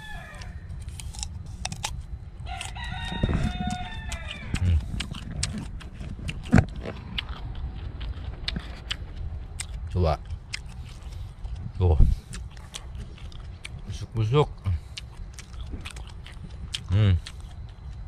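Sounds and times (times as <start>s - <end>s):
rooster crowing: 0.0s - 0.8s, 2.4s - 4.8s.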